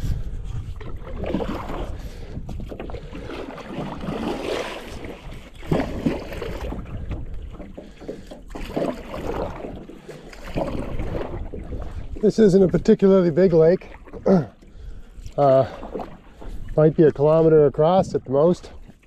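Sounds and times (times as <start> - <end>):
paddle splashing through water: 0.0 - 19.0
wind rumble on microphone: 0.0 - 19.0.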